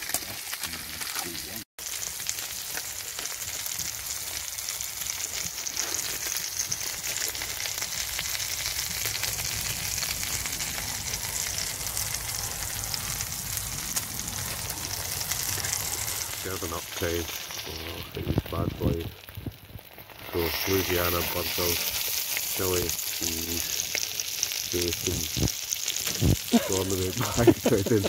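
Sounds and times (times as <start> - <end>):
meat sizzling in a pan: 0.0 - 28.0.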